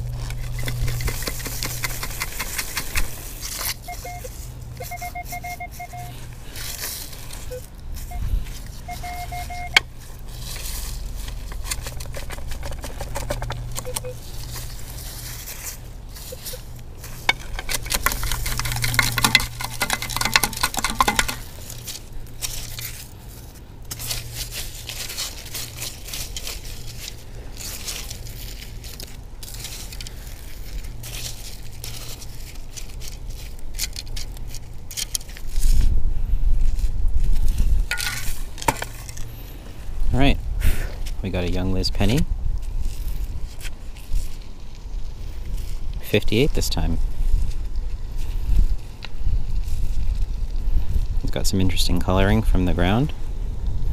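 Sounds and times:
stones and shells rattling: 0:00.0 - 0:07.6, 0:08.5 - 0:35.4, 0:37.9 - 0:39.3
metal detector beeps: 0:03.8 - 0:06.2, 0:07.4 - 0:09.9, 0:13.8 - 0:14.2, 0:16.2 - 0:16.7.

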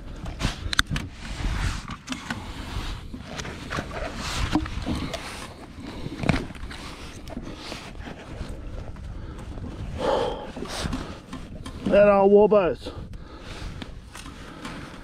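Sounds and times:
sleeve rubbing on microphone: 0:02.6 - 0:08.8.

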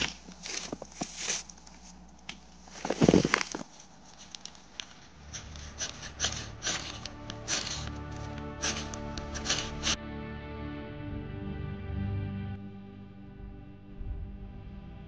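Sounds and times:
material rustling and crunching: 0:00.0 - 0:05.8.

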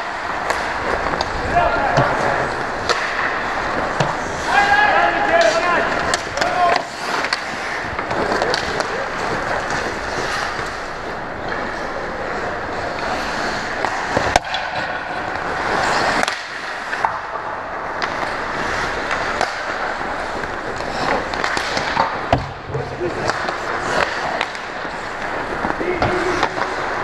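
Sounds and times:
sharp crack: 0:00.0 - 0:10.8, 0:13.8 - 0:22.6
hockey sticks and puck clacking: 0:00.0 - 0:27.0
skates scraping on ice: 0:00.0 - 0:27.0.

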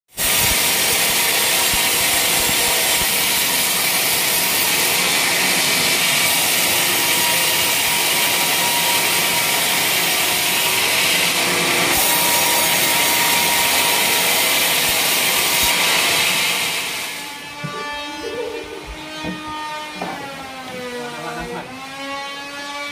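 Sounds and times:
band saw cutting log: 0:00.1 - 0:22.9.

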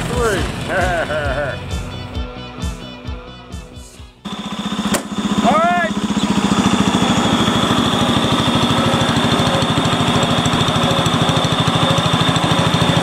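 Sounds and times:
small tractor engine running: 0:00.0 - 0:01.6, 0:04.2 - 0:13.0.

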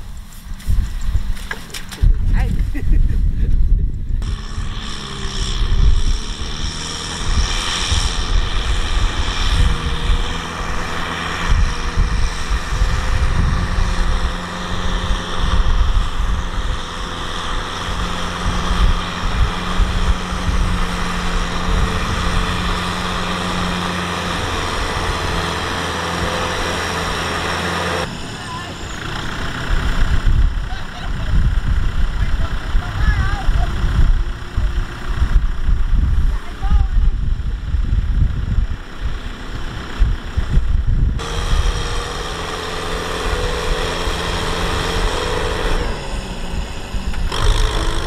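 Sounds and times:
tractor diesel engine drone: 0:00.0 - 0:48.0.

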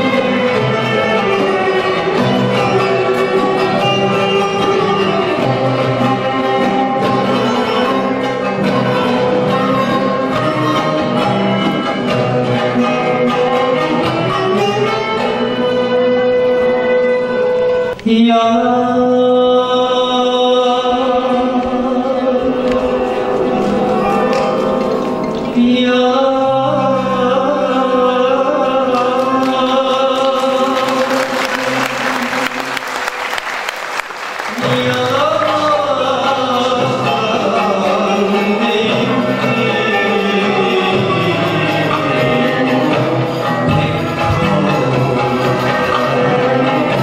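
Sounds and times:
classical ensemble playing a melody: 0:00.0 - 0:18.0, 0:21.2 - 0:47.0
solo melody with ornamented notes: 0:22.2 - 0:27.8.

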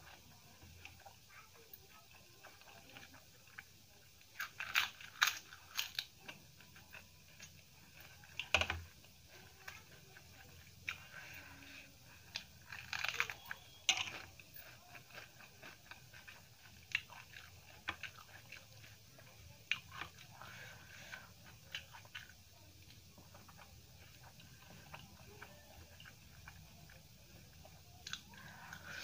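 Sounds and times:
chewing: 0:00.0 - 0:29.0
fingers mixing food on steel plate: 0:04.4 - 0:29.0
crisp crunches: 0:12.3 - 0:18.6.

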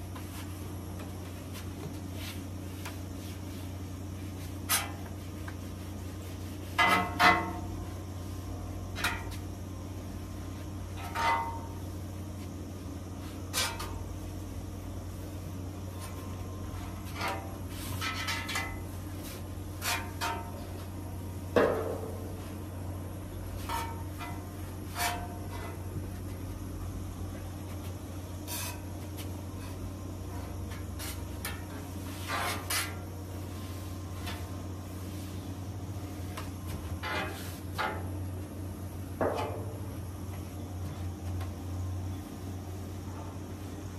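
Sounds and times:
steady low hum: 0:00.0 - 0:43.9
tools knocking on steel griddle: 0:21.5 - 0:22.4, 0:39.2 - 0:39.8.

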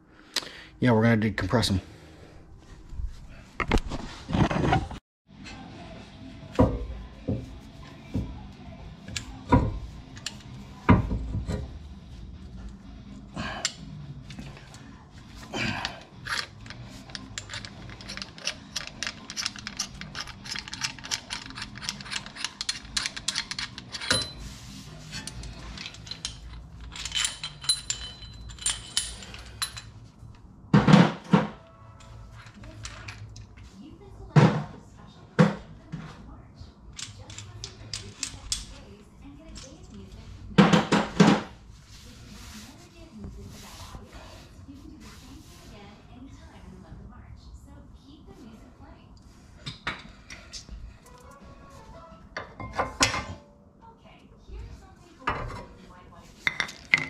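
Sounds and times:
metal clinks and knocks: 0:16.2 - 0:30.1.

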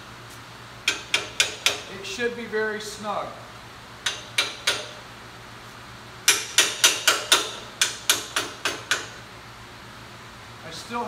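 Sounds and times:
hammer tapping on metal: 0:00.9 - 0:01.9, 0:04.0 - 0:05.0, 0:06.3 - 0:09.2.

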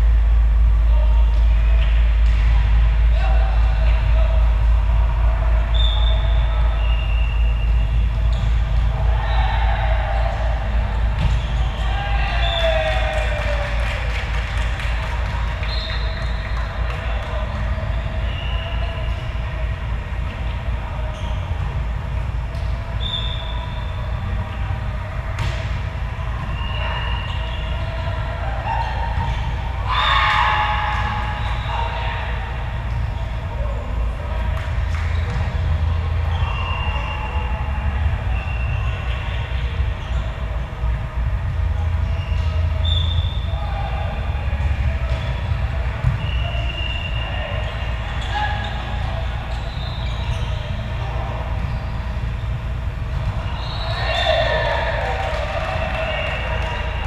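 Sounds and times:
gym ambience low rumble: 0:00.0 - 0:57.0
sneakers squeaking on court floor: 0:05.7 - 0:09.4, 0:10.9 - 0:12.8, 0:20.2 - 0:28.0, 0:28.7 - 0:31.7, 0:34.5 - 0:40.9, 0:44.5 - 0:54.6.

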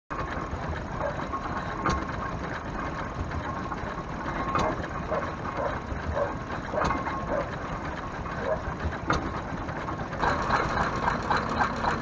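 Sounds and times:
stationary engine clattering: 0:00.1 - 0:12.0.

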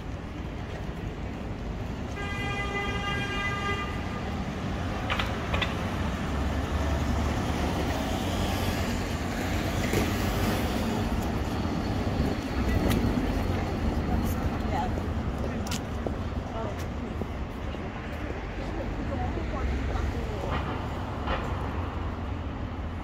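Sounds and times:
traffic passing: 0:00.0 - 0:23.0
vehicle horn tooting: 0:02.2 - 0:04.1.

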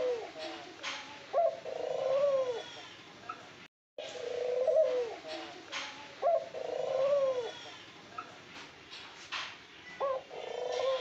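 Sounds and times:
doves cooing: 0:00.0 - 0:02.9, 0:04.0 - 0:07.8, 0:10.0 - 0:11.0.

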